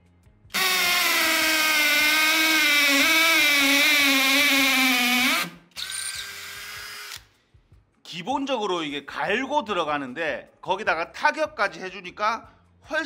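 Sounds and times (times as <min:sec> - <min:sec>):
hammer drill boring into concrete: 0:00.5 - 0:07.3.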